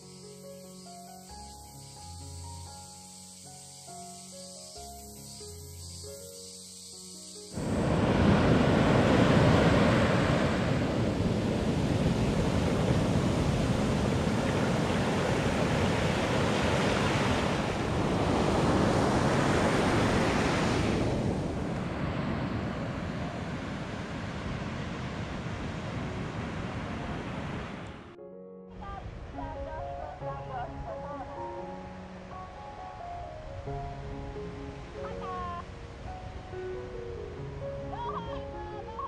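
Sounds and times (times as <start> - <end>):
sea surf breaking on beach: 7.5 - 28.1.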